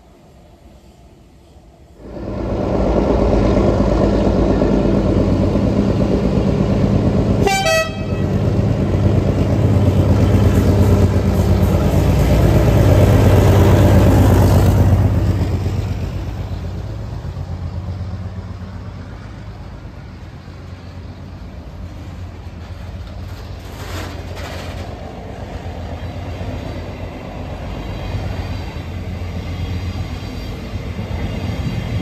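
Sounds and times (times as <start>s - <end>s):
train wagons rolling by: 0.0s - 32.0s
diesel locomotive running hard: 1.9s - 32.0s
two-note train horn toot: 7.4s - 8.4s.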